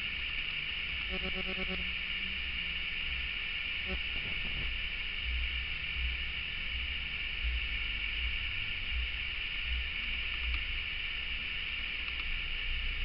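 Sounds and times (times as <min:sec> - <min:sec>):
background hiss: 0:00.0 - 0:13.0
low rumble: 0:02.4 - 0:10.6.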